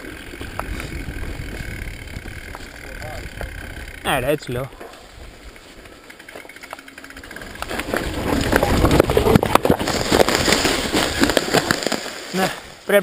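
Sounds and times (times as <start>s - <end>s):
mountain bike rattling over dirt: 0.0s - 13.0s.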